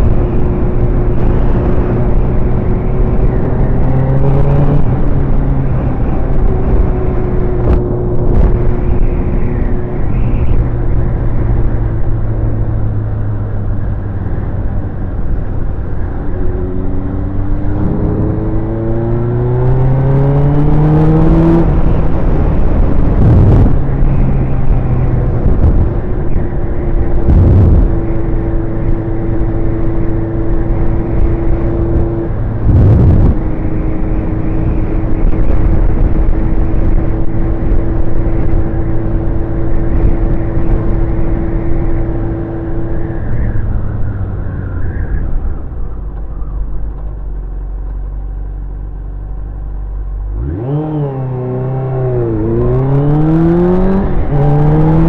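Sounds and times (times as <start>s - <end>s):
riding wind noise: 0.0s - 55.0s
motorcycle engine revving: 15.1s - 44.6s, 49.6s - 55.0s.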